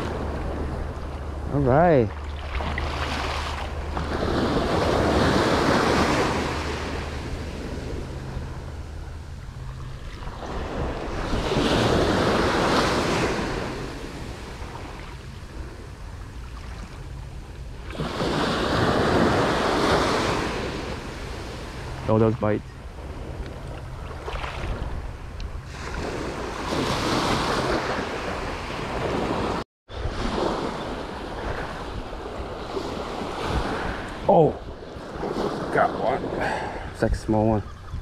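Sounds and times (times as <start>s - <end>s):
wind rumble on microphone: 0.0s - 38.0s
surf breaking on beach: 1.4s - 8.5s.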